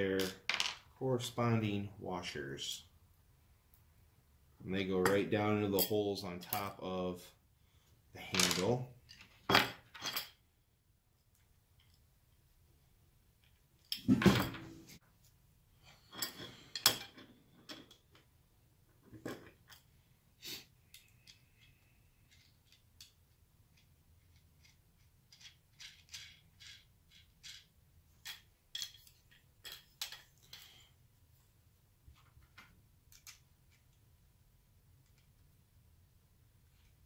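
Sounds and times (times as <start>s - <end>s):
plastic parts and screws clattering: 20.9s - 30.8s.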